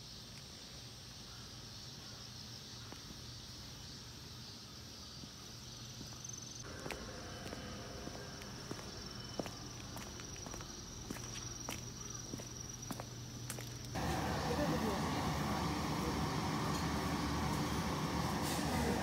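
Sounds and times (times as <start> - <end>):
insects chirring: 0.0 - 14.0
footsteps on concrete: 2.8 - 3.2, 5.1 - 14.0.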